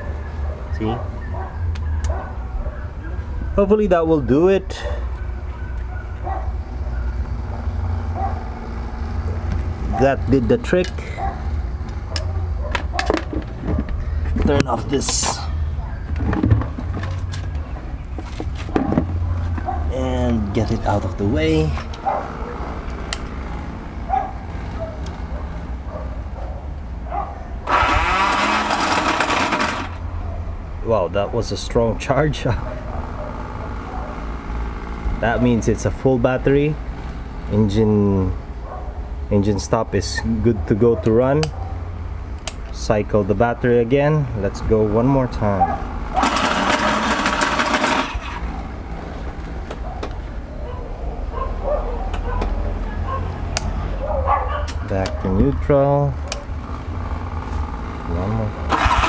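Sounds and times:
faint dog barking: 0.0 - 3.6, 4.7 - 8.5, 9.2 - 10.2, 11.0 - 14.1, 15.5 - 16.2, 18.7 - 20.1, 22.0 - 22.8, 24.1 - 27.6, 32.6 - 34.4, 38.6 - 39.2, 40.4 - 42.0, 45.5 - 46.2, 49.8 - 55.4
dog yipping faintly: 4.8 - 7.2, 49.8 - 53.4, 54.0 - 55.4
motorcycle starter cranking engine: 27.6 - 30.1, 46.1 - 48.6, 58.0 - 59.0.

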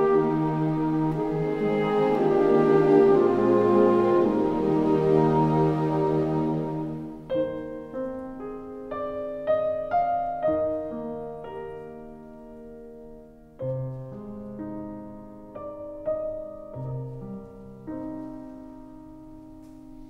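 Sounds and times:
gentle piano melody: 0.0 - 20.0.

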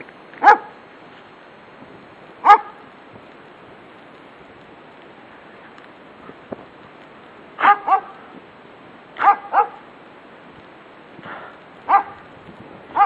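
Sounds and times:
dog barking: 0.4 - 0.8, 2.4 - 2.8, 7.6 - 8.2, 9.2 - 9.8, 11.9 - 12.2.

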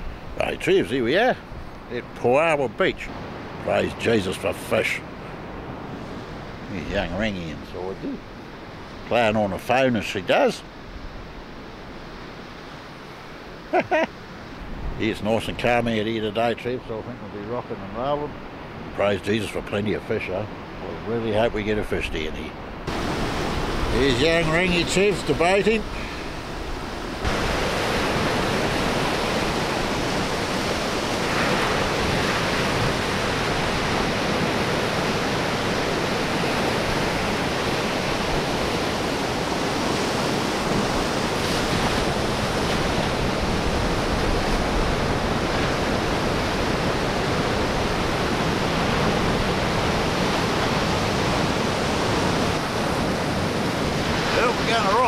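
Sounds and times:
surf breaking on rocks: 22.9 - 55.0.

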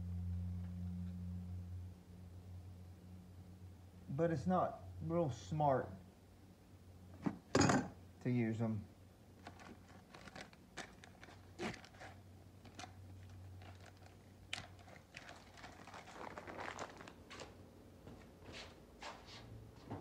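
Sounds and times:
steady low hum: 0.0 - 20.0
plastic packaging crinkling: 9.4 - 17.6.

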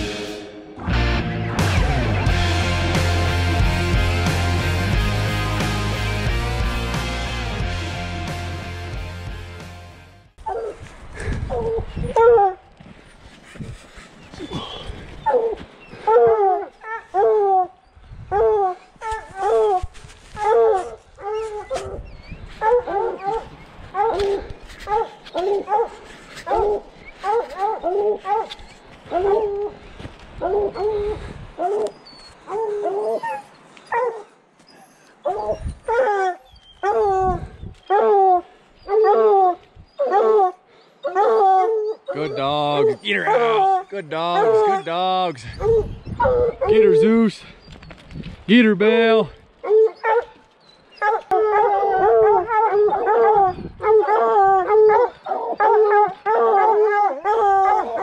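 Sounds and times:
wind rumble on microphone: 10.7 - 12.5, 17.9 - 18.6, 19.2 - 24.9, 29.9 - 31.7, 35.3 - 36.0, 36.6 - 37.9, 45.4 - 46.8, 47.6 - 48.5, 51.9 - 54.6
hounds baying: 14.2 - 19.8, 20.4 - 47.5, 49.6 - 58.0.

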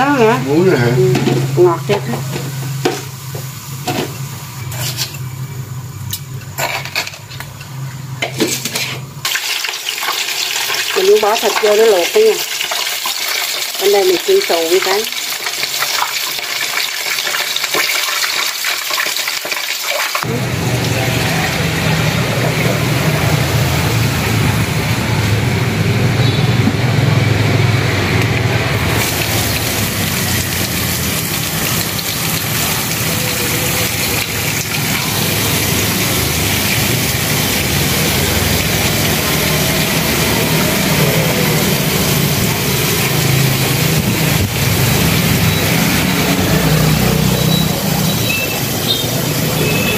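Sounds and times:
oil sizzling in a wok: 0.0 - 49.9
tap water gushing into basin: 9.2 - 24.2, 28.2 - 49.9.

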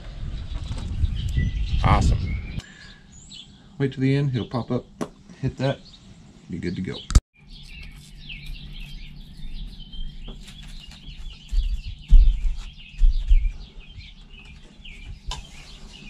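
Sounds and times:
small birds chirping: 0.2 - 16.0
dull low thumps: 9.8 - 14.4.

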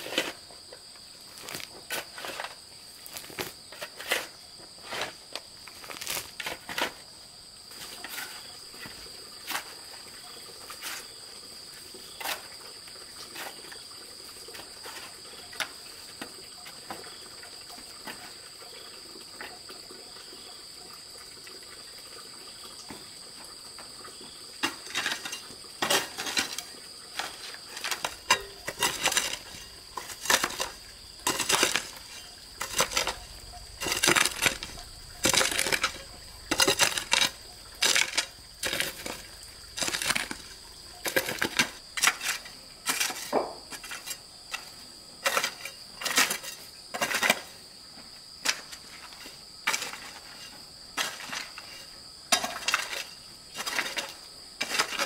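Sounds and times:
insect drone: 0.0 - 55.0
hoe chopping into dirt: 27.2 - 42.2.

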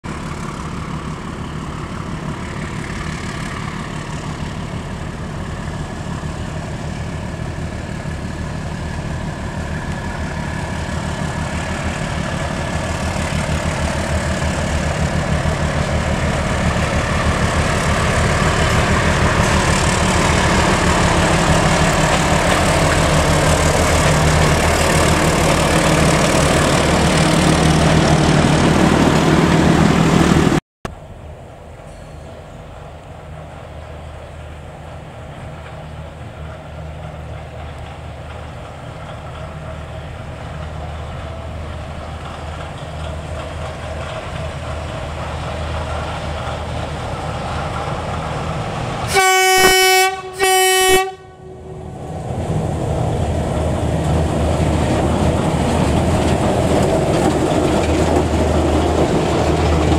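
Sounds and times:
locomotive engine hum: 0.0 - 59.9.

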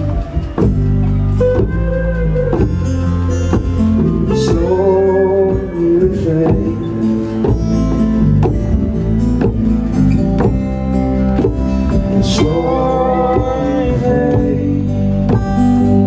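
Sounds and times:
hand drum beating: 0.0 - 15.9
acoustic guitar strumming: 0.0 - 16.0.

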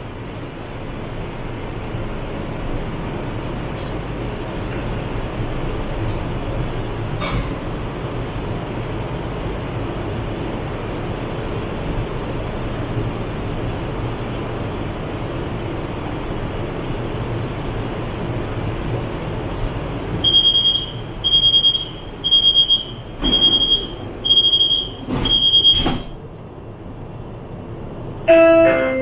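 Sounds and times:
high door warning beeps: 20.2 - 26.2
train doors sliding shut: 23.2 - 24.1, 24.9 - 26.2.

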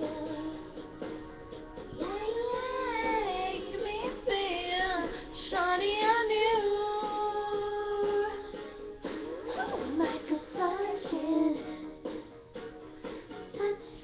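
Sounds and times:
girl singing a melody: 0.0 - 0.8, 2.0 - 8.8, 9.6 - 12.0, 13.6 - 14.0.

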